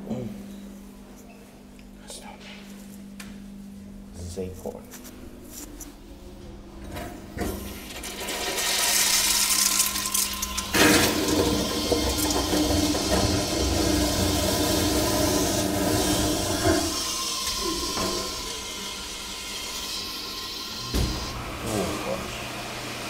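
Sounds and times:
vacuum toilet flushing: 6.8s - 23.0s.

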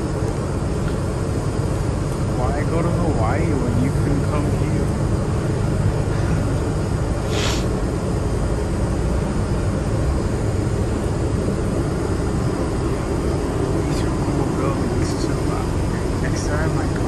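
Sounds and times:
vehicle engine and road rumble: 0.0s - 17.0s
short hiss: 7.2s - 7.7s.

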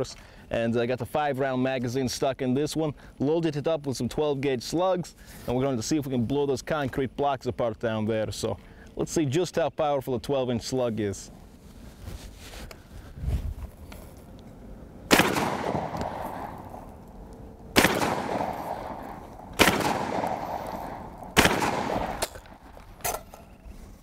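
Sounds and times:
long rolling echo: 14.5s - 22.9s
shotgun shots: 15.1s - 16.9s, 17.7s - 22.7s.

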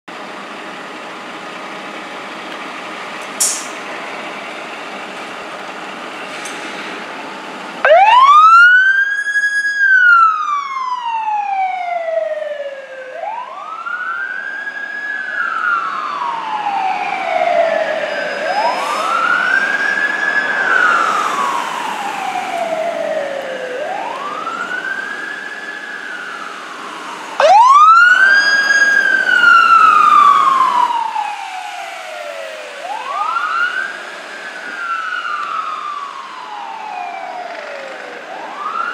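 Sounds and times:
fire engine idling: 0.1s - 9.8s, 21.2s - 38.9s
short hiss: 3.4s - 3.8s
second louder siren: 7.3s - 38.9s
siren wailing: 7.3s - 38.9s.

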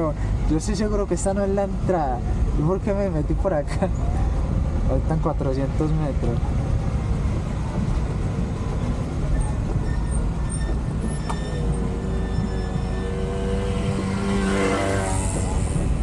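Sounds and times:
road noise: 0.0s - 16.0s.

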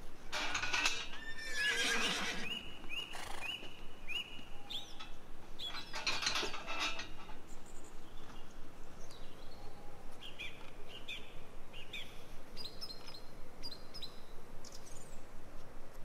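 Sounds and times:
metal gate rattling: 0.3s - 2.4s, 4.9s - 7.4s
gate hinges squeaking: 0.3s - 2.6s, 4.9s - 7.4s.

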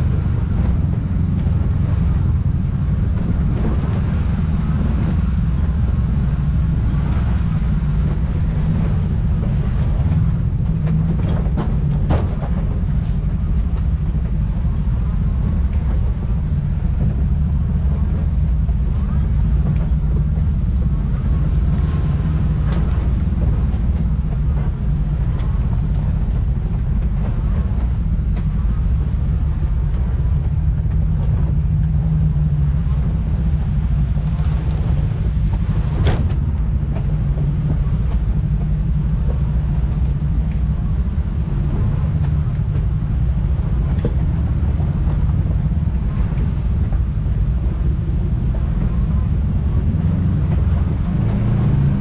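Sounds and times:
vehicle engine running: 0.0s - 52.0s.

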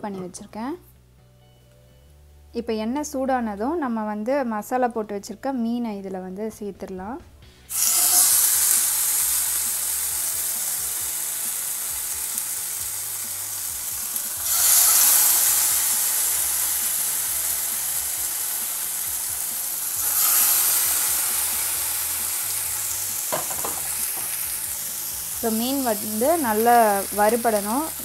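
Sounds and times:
fish sizzling in hot oil: 7.7s - 28.0s.

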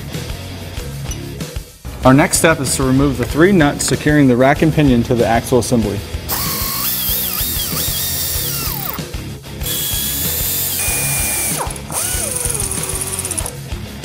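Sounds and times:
background music: 0.0s - 14.0s
power ratchet motor whine: 6.3s - 9.0s, 9.6s - 13.6s.

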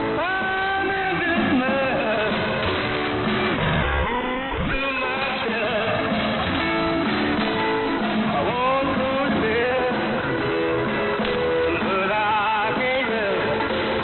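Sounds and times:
guitar music over radio: 0.0s - 14.0s
radio static: 3.1s - 5.7s.

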